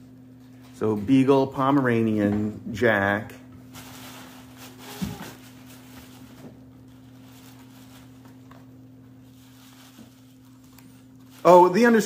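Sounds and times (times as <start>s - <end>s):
faint steady hum: 0.0s - 12.0s
kittens rustling in tissue paper: 3.7s - 12.0s.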